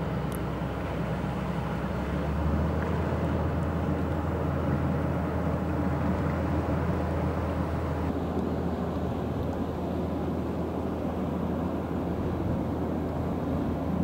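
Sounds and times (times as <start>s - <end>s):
barge diesel engine rumbling: 0.0s - 8.1s.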